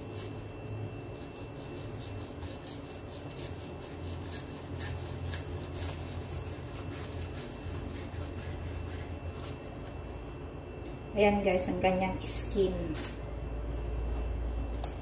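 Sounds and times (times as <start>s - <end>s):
knife scraping fish skin: 0.0s - 10.0s
low hum: 5.0s - 15.0s.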